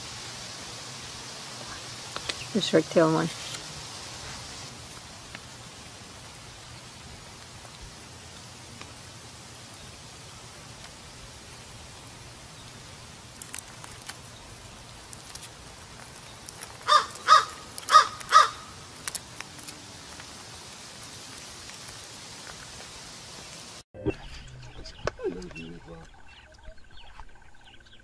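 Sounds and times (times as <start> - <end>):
steady hiss: 0.0 - 23.8
animal calls: 16.8 - 19.9.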